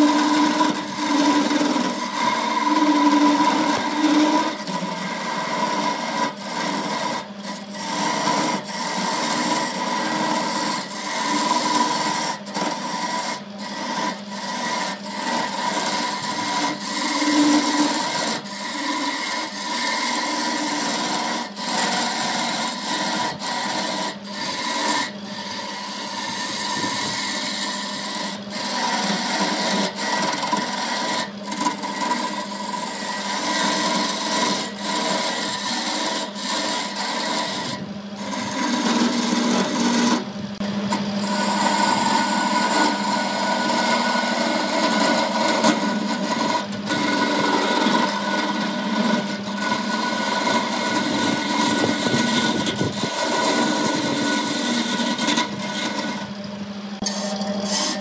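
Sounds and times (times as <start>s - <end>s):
tool scraping spinning wood: 0.0s - 58.0s
wood lathe humming: 0.0s - 58.0s.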